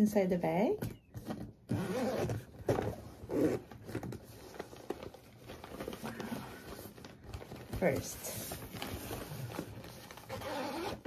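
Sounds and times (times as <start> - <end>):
zipper being pulled open: 1.7 - 4.5, 9.0 - 11.0.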